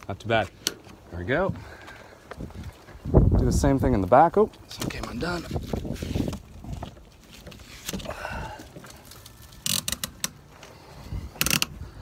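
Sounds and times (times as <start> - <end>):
rope scuffs and clicks: 4.5 - 10.8.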